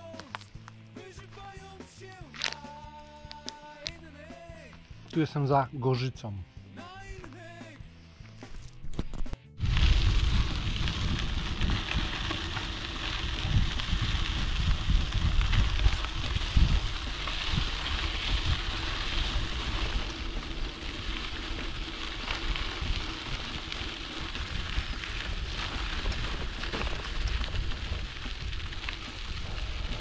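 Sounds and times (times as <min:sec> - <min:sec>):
wind buffeting microphone: 0:09.6 - 0:30.0.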